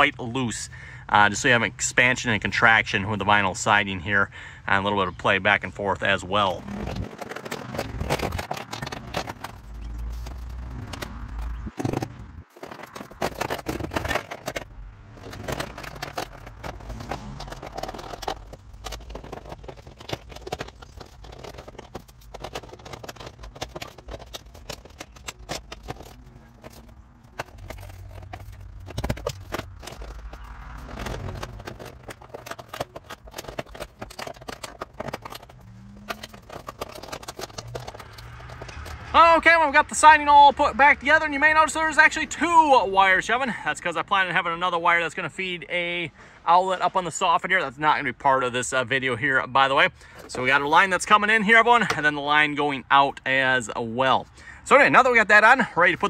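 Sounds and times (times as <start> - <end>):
plastic siding scraping and snapping: 6.0 - 39.2.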